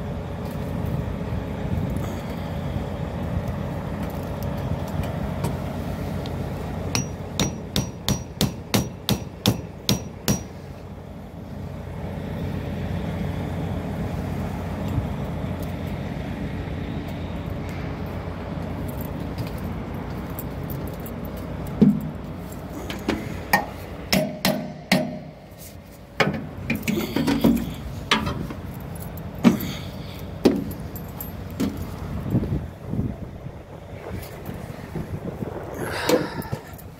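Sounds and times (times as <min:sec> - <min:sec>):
steady low hum: 0:00.0 - 0:36.9
ringing metal taps: 0:07.0 - 0:10.5
metallic knocks on steel tank: 0:23.6 - 0:25.3.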